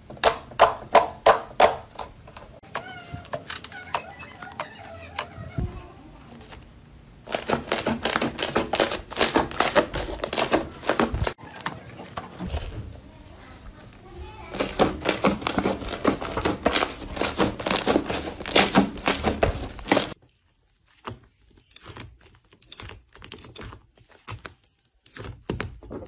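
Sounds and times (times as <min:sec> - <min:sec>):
sticky slime stretching: 0:03.7 - 0:26.0
slime crackling and popping: 0:07.2 - 0:11.4, 0:14.5 - 0:25.7.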